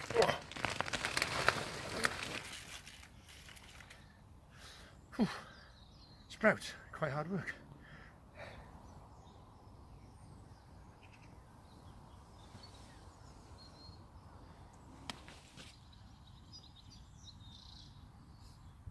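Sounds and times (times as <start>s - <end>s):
faint bird chirps: 8.0s - 18.9s.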